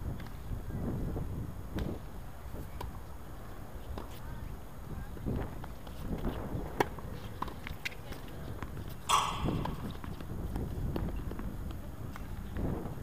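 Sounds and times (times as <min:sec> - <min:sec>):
wind rumble on microphone: 0:00.0 - 0:03.2, 0:08.4 - 0:13.0
tennis balls struck and bouncing: 0:09.1 - 0:10.4.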